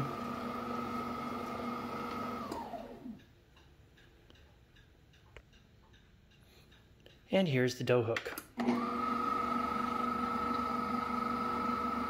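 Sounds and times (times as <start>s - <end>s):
stand mixer motor whining: 0.0s - 3.2s, 8.6s - 12.0s.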